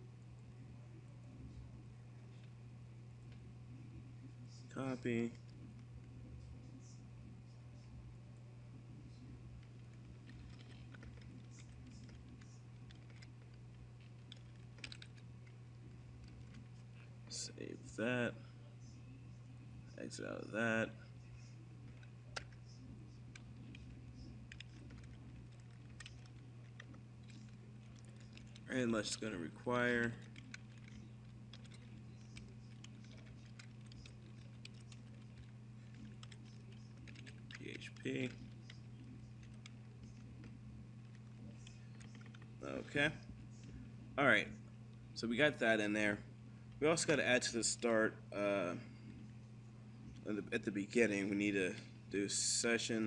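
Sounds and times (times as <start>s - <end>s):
steady low hum: 0.0s - 53.0s
faint keyboard typing: 3.2s - 17.9s, 18.8s - 45.1s.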